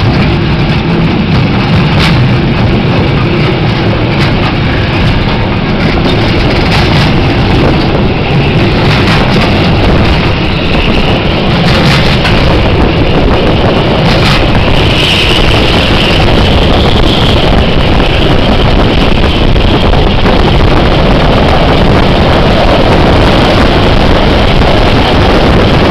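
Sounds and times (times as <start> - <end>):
train rumbling: 0.0 - 25.9
wind buffeting microphone: 0.0 - 25.9.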